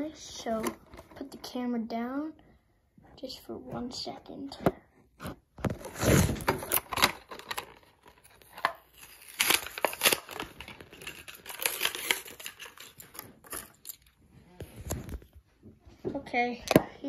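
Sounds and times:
packaging crinkling and tearing: 0:05.7 - 0:15.4.

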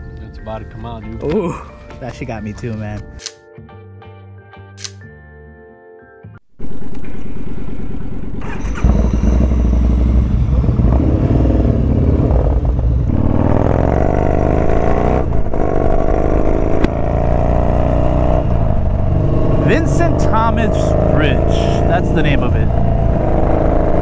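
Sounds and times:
motorcycle engine accelerating: 0:06.6 - 0:24.0.

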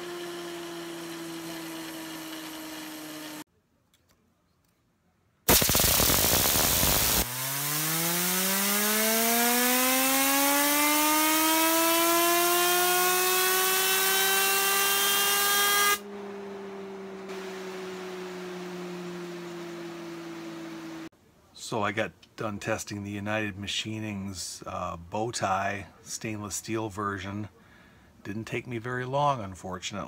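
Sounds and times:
compressed air hissing: 0:05.5 - 0:07.3
fidget spinner whining: 0:05.9 - 0:15.5.

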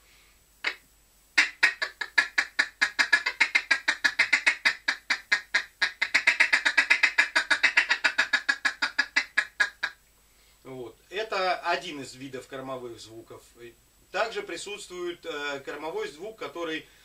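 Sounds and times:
duck call ticking notes: 0:01.4 - 0:10.0.

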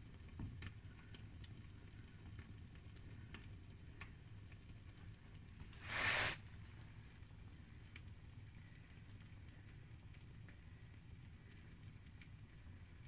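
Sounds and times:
bubbles popping in boiling pot: 0:00.0 - 0:13.0
low steady hum: 0:00.0 - 0:13.0
brief hiss: 0:05.8 - 0:06.5.

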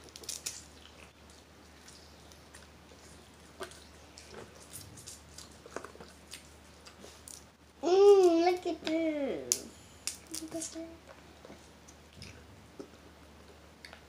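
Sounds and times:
chewing: 0:00.0 - 0:07.5.

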